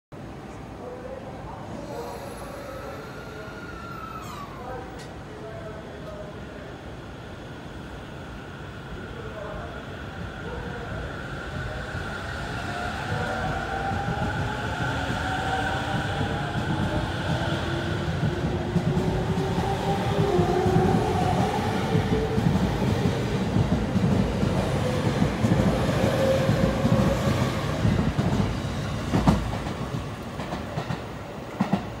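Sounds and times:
train wheels clattering on rails: 0:18.1 - 0:32.0.

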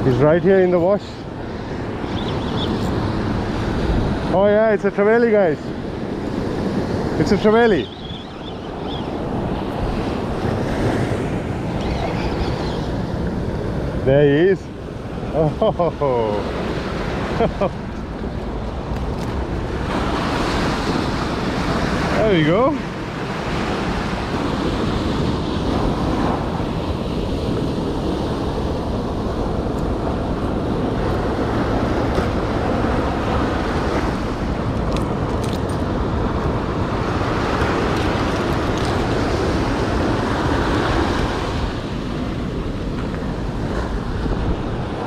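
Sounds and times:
surf washing up a sand beach: 0:00.0 - 0:45.0
wind buffeting microphone: 0:16.0 - 0:45.0.

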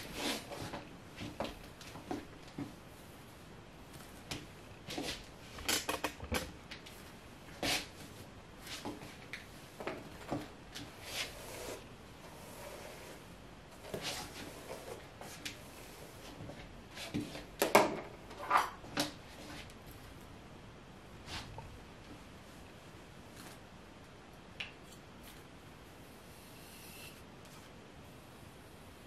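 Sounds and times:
hair rustling by hand: 0:00.0 - 0:17.6.

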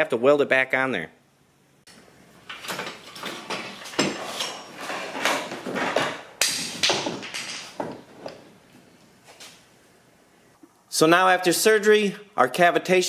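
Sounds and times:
metal knocks and clanks: 0:02.5 - 0:08.4.

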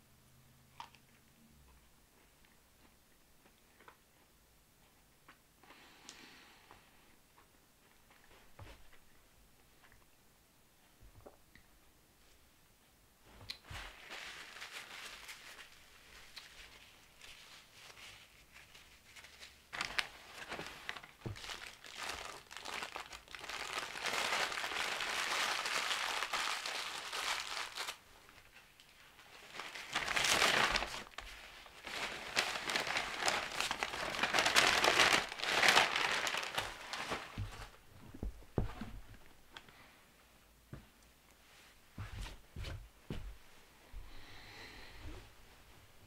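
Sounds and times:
paper bag crinkling: 0:13.7 - 0:18.2, 0:19.0 - 0:28.5, 0:29.1 - 0:37.8
paper crumpling: 0:13.7 - 0:37.8.

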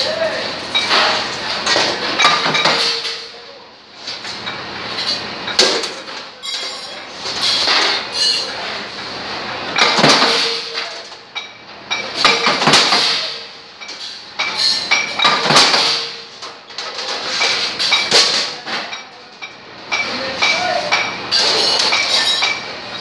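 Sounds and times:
punch press clanking: 0:09.7 - 0:10.8, 0:12.0 - 0:13.5, 0:14.4 - 0:16.3.

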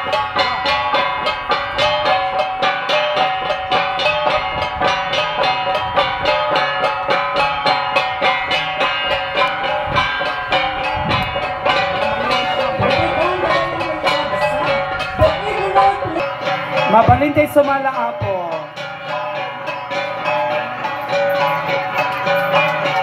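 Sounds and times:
bronze gongs struck rhythmically: 0:00.0 - 0:23.0.

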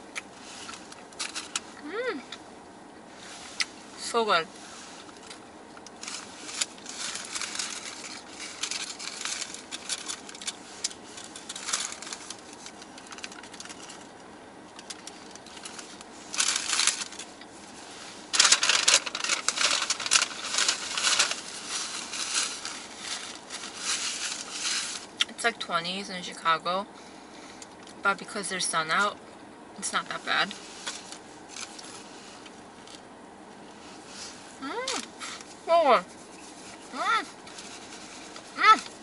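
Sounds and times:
biting and chewing: 0:05.0 - 0:17.6
paper wrapper crinkling: 0:05.0 - 0:25.2, 0:30.6 - 0:33.0, 0:34.9 - 0:39.0.

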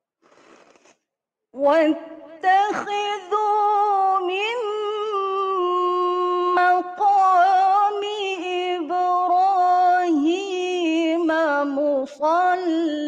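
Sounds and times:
woman reciting melodically: 0:01.6 - 0:13.0.

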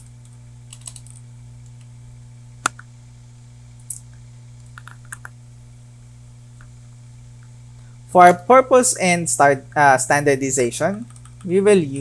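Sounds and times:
low electrical hum: 0:00.0 - 0:12.0
keyboard keystrokes: 0:00.7 - 0:01.2, 0:04.8 - 0:05.3, 0:10.9 - 0:11.5.

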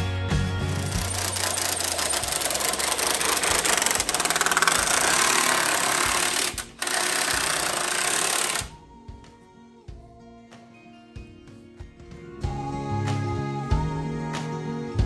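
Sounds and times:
impact driver hammering bolt: 0:00.7 - 0:08.8.

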